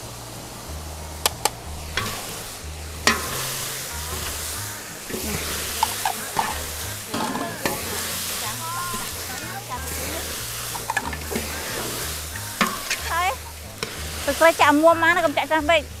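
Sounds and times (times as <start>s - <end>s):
meat sizzling in pan: 0.2s - 16.0s
ladle knocking against pan: 1.2s - 8.3s, 8.9s - 14.2s
metal ladle scraping pan: 1.2s - 16.0s.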